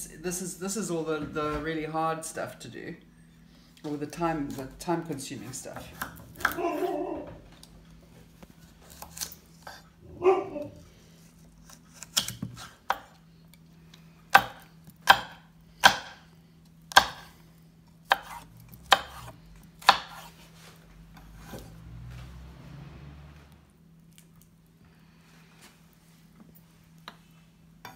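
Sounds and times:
knife chopping on wooden board: 5.8 - 6.9, 11.6 - 13.1, 14.3 - 16.2, 16.9 - 17.3, 18.0 - 20.3.

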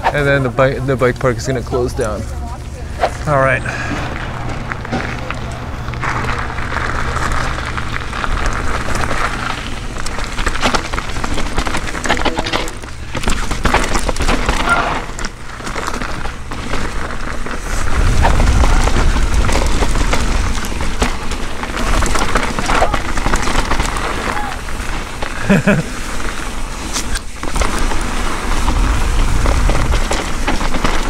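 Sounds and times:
bike clattering over bumps: 1.4 - 31.0
wind buffeting microphone: 17.6 - 23.1.

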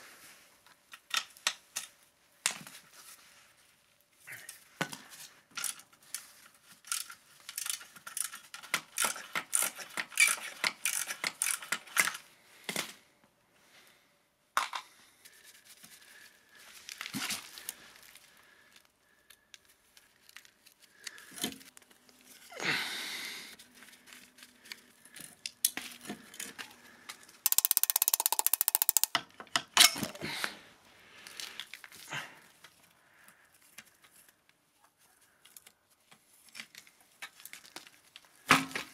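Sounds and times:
socket ratchet clicking: 27.5 - 29.2.

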